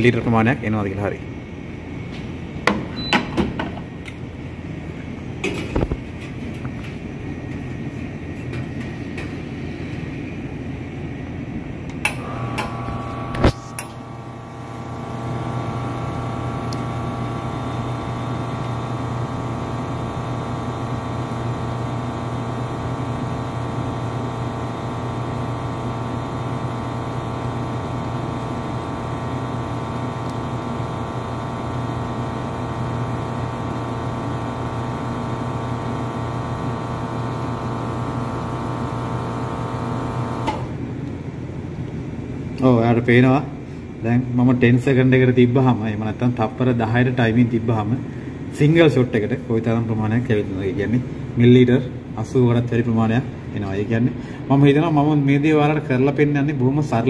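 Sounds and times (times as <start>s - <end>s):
espresso machine pump humming: 12.0s - 40.9s.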